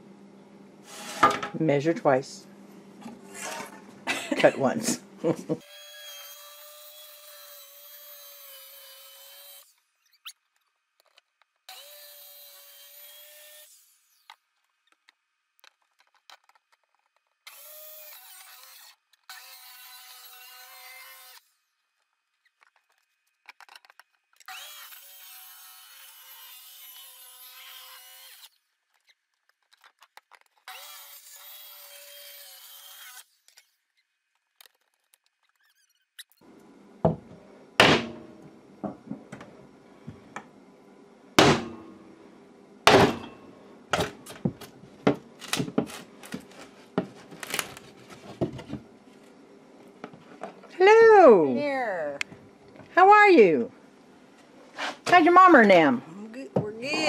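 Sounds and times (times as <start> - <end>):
power drill drilling wood: 5.6 - 9.8, 17.5 - 21.5, 24.5 - 28.5, 30.7 - 33.7
knocks on wood sheathing: 37.1 - 39.2, 41.4 - 41.8.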